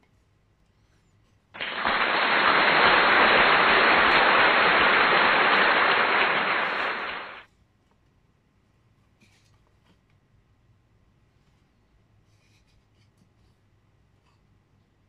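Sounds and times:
loud rushing noise: 1.6s - 7.4s.

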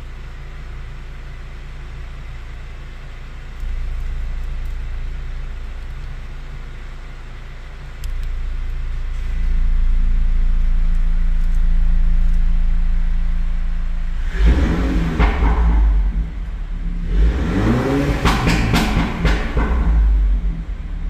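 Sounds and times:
car engine idling and revving: 0.0s - 21.0s
exhaust pops and crackles: 14.4s - 16.7s, 18.0s - 20.7s.

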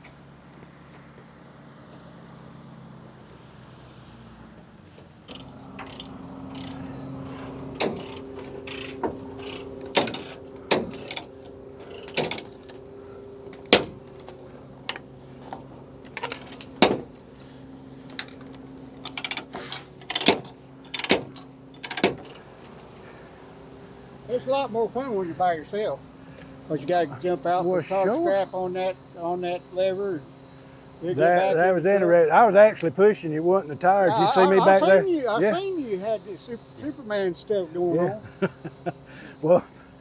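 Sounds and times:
engine running steadily: 0.0s - 40.0s
sharp metallic clanks and clicks: 5.3s - 22.8s.

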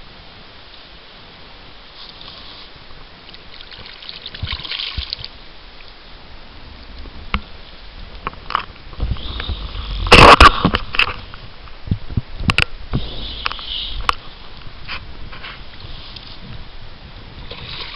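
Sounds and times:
water trickling and lapping: 1.9s - 6.0s, 13.0s - 17.9s.

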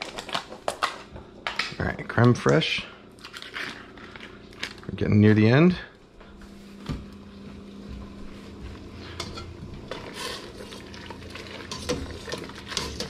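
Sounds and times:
steady hum: 0.1s - 13.0s
pot boiling: 8.5s - 13.0s.

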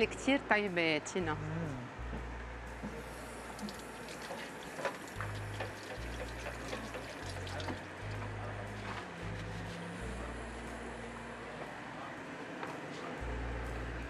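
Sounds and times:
tap water running into sink: 2.8s - 8.2s.

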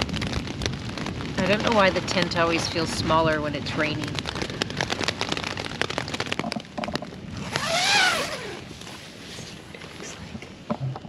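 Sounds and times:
rain: 0.0s - 11.0s
tent fabric rustling: 3.9s - 10.7s
tent zipper pulled open: 7.3s - 10.2s.

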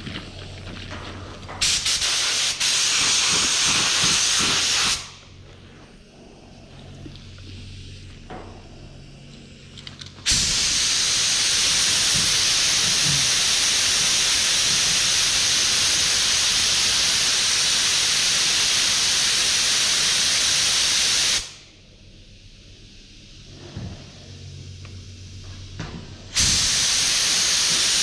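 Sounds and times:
paint spray gun hissing: 1.6s - 5.2s, 10.3s - 21.6s, 26.3s - 28.0s.

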